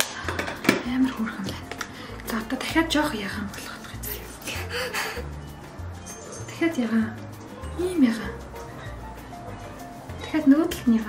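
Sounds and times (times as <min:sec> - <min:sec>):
background music with low bassline: 0:00.0 - 0:11.0.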